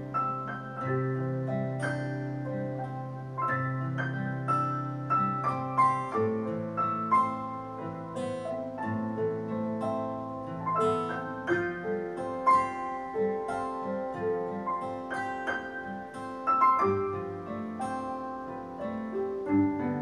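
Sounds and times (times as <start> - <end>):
piano music over loudspeakers: 0.0 - 20.0.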